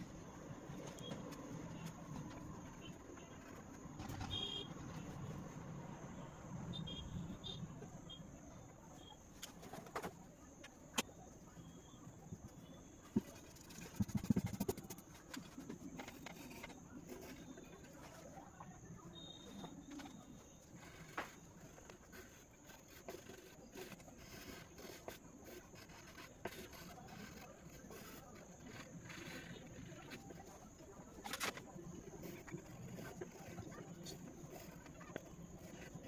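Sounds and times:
pen and pencils on paper: 0.0s - 6.2s, 7.0s - 36.0s
faint bird chirps: 17.4s - 21.0s.

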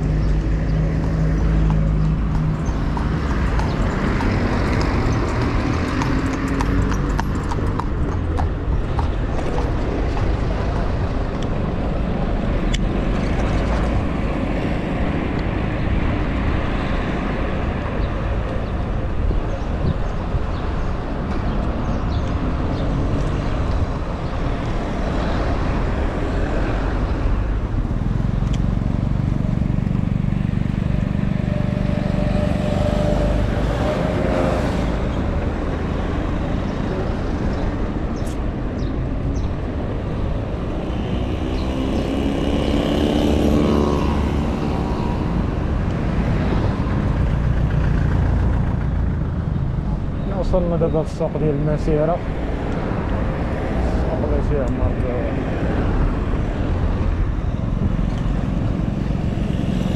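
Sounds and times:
steady low traffic rumble: 0.0s - 59.9s
vehicles passing close by: 0.0s - 59.9s.

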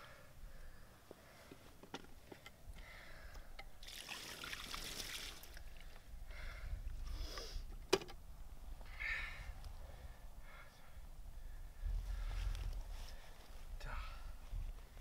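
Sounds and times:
water pouring and splashing: 3.8s - 5.6s.

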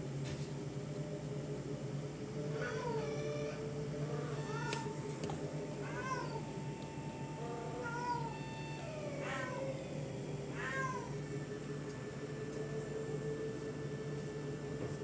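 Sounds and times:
steady low hum: 0.0s - 15.0s
cat meowing: 2.5s - 5.0s, 5.8s - 6.5s, 7.4s - 9.9s, 10.5s - 11.2s.

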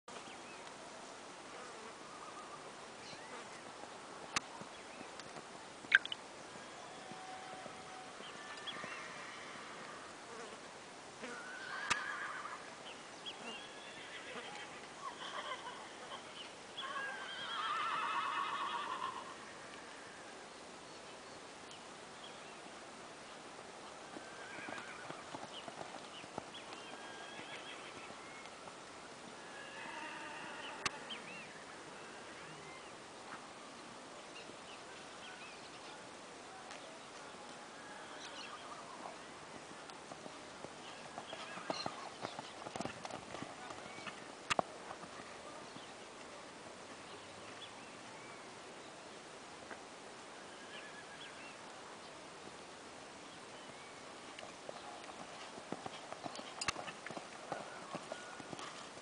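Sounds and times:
high chirps: 5.9s - 6.2s
horse hoofbeats on sand: 24.1s - 28.2s, 40.0s - 45.9s, 54.3s - 59.0s.

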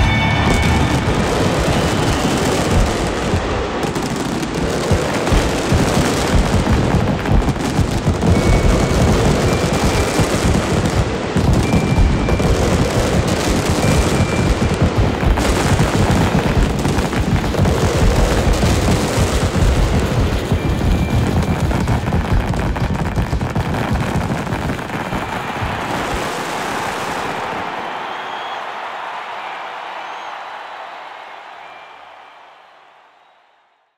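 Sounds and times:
music: 0.0s - 3.0s
fireworks booming and crackling: 0.0s - 31.3s.

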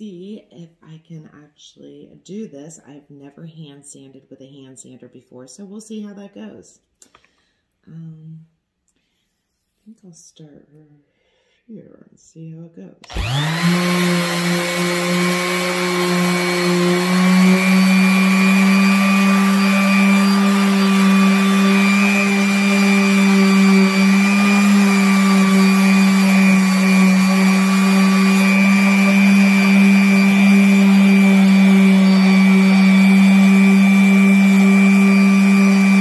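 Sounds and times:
electric sander running: 13.0s - 36.0s.

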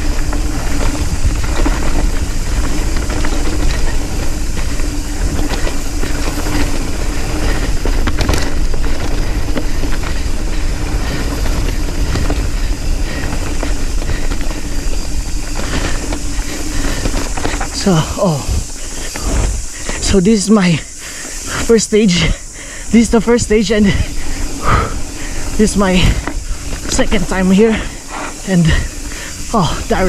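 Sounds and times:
bike tyres rumbling and rattling: 0.0s - 30.0s
steady hum: 0.0s - 30.0s
wind buffeting: 0.0s - 30.0s.

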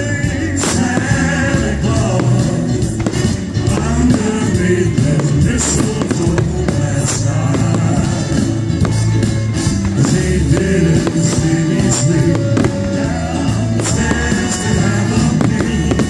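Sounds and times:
fireworks bursting: 0.0s - 16.0s
music with bass and percussion: 0.0s - 16.0s.

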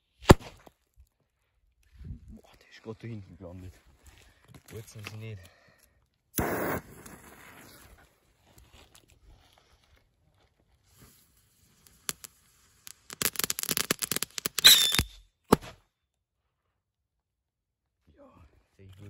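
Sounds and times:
firecracker crackling pops: 0.2s - 0.7s, 6.4s - 8.1s, 11.0s - 15.8s
firecracker bang: 6.4s - 7.9s
firecracker whistle: 6.4s - 7.9s, 12.0s - 15.2s.

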